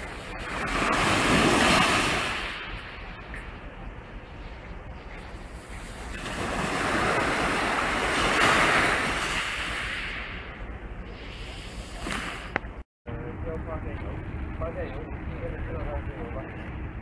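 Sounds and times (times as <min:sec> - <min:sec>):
waves breaking on shingle beach: 0:00.0 - 0:02.7, 0:05.8 - 0:10.3.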